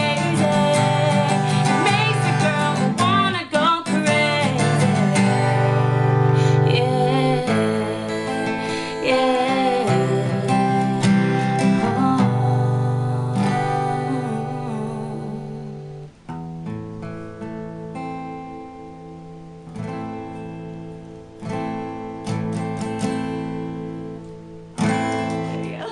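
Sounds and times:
acoustic guitar strumming chords: 0:00.0 - 0:25.9.

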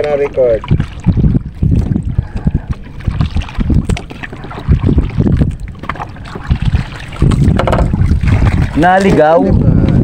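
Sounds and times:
wind buffeting microphone: 0:00.0 - 0:10.0
light handling knocks: 0:07.5 - 0:08.0.

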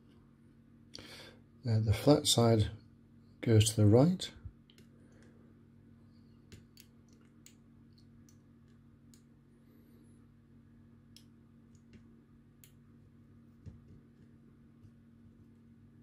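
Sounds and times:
low steady hum: 0:00.0 - 0:16.0
small clicks of circuit board parts: 0:06.5 - 0:09.3.

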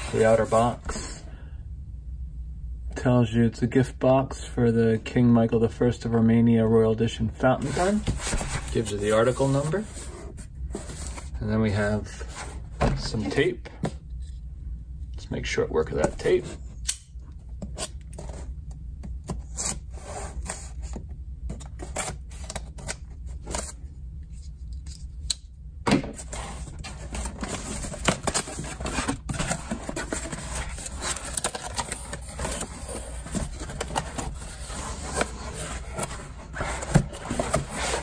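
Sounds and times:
cardboard scraping and rustling: 0:00.0 - 0:01.1, 0:07.6 - 0:13.6, 0:26.1 - 0:38.0.

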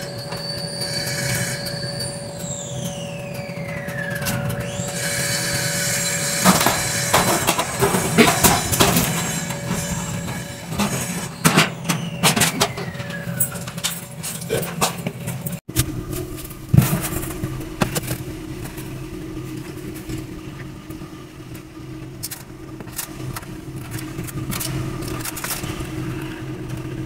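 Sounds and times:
squealing metal scrape: 0:00.0 - 0:15.6
steady hum: 0:00.0 - 0:27.0.

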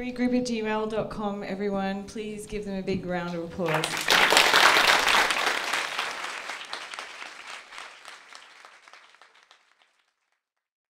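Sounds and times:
audience applause: 0:03.7 - 0:10.2.

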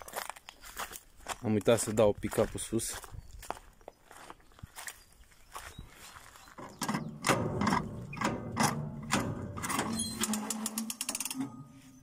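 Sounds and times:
metal clicking and clanking: 0:06.8 - 0:11.8.

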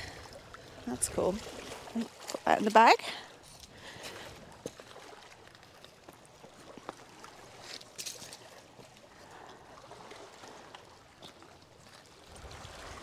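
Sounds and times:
water lapping at a rocky shore: 0:00.0 - 0:13.0
stones shifting underfoot: 0:05.5 - 0:08.9.

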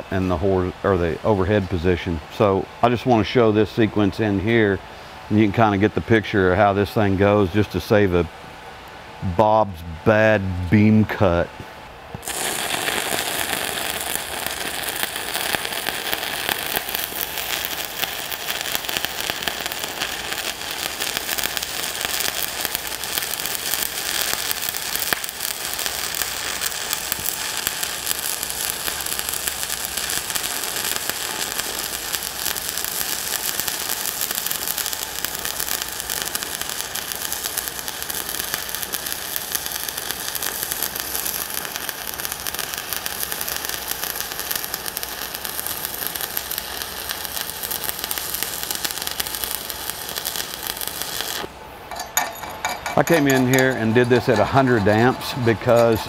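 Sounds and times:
welding arc crackling: 0:12.2 - 0:56.0.

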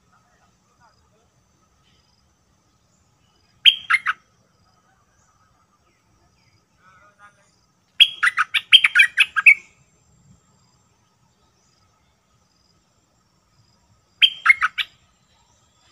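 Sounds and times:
bird singing rapid notes: 0:01.9 - 0:04.3, 0:07.9 - 0:09.9, 0:14.1 - 0:15.9.

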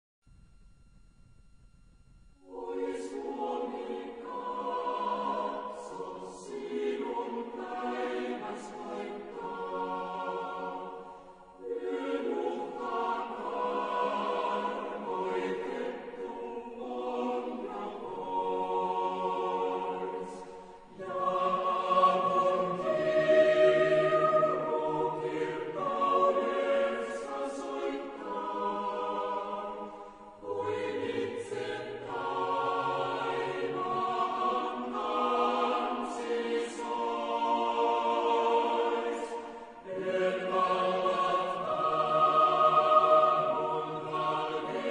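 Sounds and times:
choir singing slow chords: 0:00.3 - 0:44.9
singers breathing: 0:29.8 - 0:30.4, 0:39.4 - 0:39.8.

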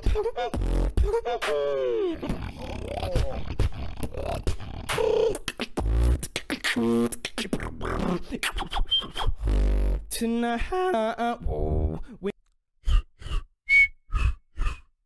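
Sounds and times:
beatboxing percussion hits: 0:00.0 - 0:10.0.

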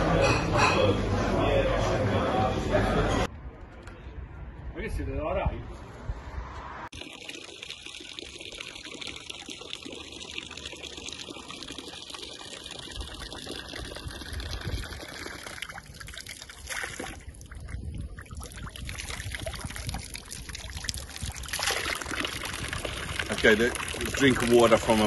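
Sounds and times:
drinking fountain water splashing: 0:06.9 - 0:25.0.

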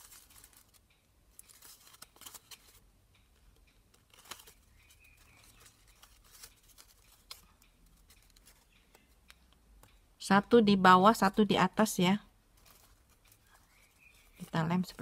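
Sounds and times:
paper rustling: 0:00.0 - 0:02.8, 0:03.9 - 0:09.1, 0:12.6 - 0:15.0
small crisp paper clicks: 0:00.0 - 0:10.0, 0:12.5 - 0:15.0.

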